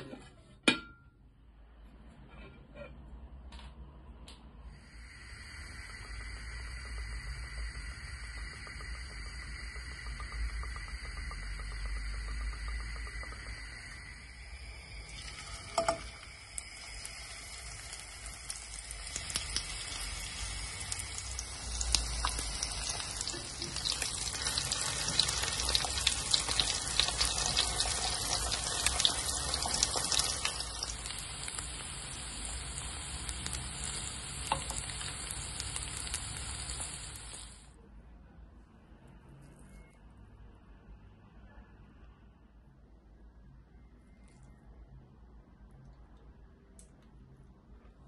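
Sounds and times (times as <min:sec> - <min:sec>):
chicken sizzling in oil: 0:04.8 - 0:37.8.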